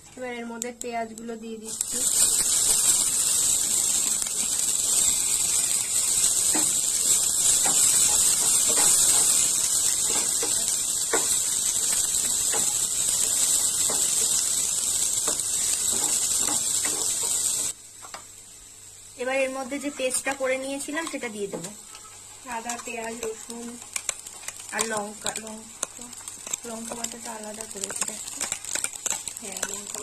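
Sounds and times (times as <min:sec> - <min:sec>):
onions sizzling in hot oil: 0:00.2 - 0:30.0
spatula scraping and tapping pan: 0:07.4 - 0:11.6, 0:15.2 - 0:17.4, 0:21.0 - 0:30.0.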